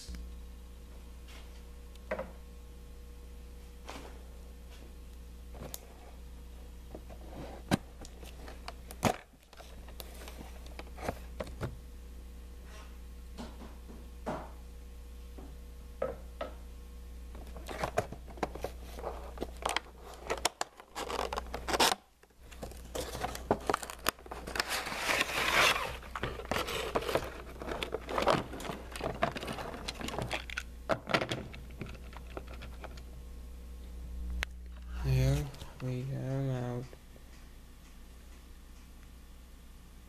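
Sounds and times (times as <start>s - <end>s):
packaging crinkling and tearing: 17.4s - 33.0s.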